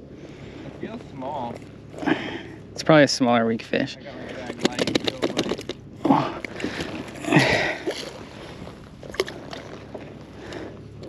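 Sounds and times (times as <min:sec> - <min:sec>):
water splashing against kayak: 0:04.5 - 0:11.0.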